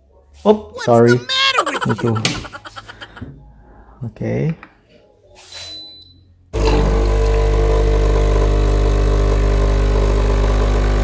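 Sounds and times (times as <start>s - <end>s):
espresso machine pump humming: 6.6s - 11.0s.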